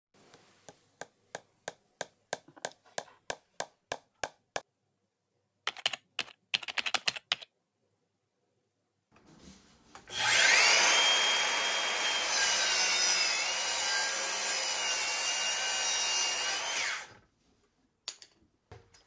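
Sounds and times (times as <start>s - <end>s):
keyboard typing clicks: 5.7s - 7.5s.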